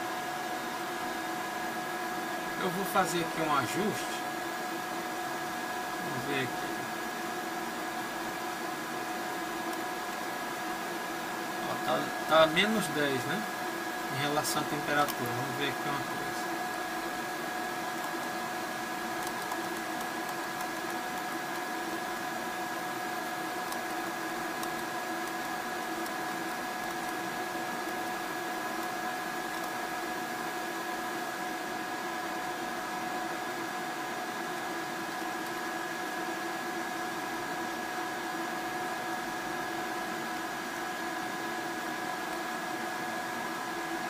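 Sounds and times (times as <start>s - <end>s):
power inverter electrical hum: 0.0s - 44.0s.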